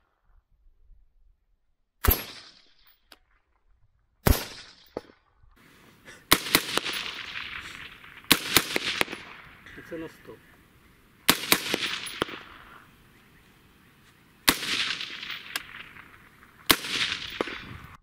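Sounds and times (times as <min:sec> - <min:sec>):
suppressed rifle shots: 0:02.0 - 0:02.8, 0:04.2 - 0:05.0, 0:06.1 - 0:13.4, 0:14.4 - 0:18.0.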